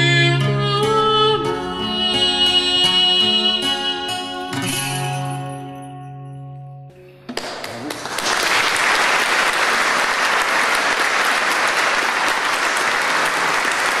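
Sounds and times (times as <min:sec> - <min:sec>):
audience applauding: 0:07.3 - 0:14.0.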